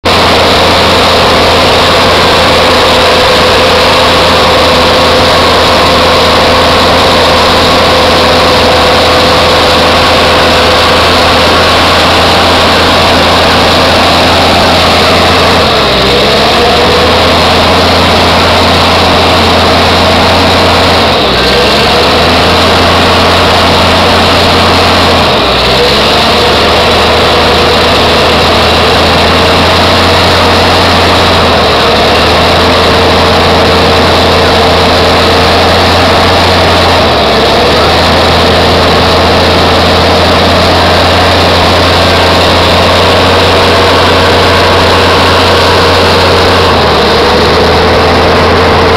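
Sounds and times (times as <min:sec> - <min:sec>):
diesel truck engine running hard: 0:00.0 - 0:48.9
wheels spinning in mud: 0:00.1 - 0:48.9.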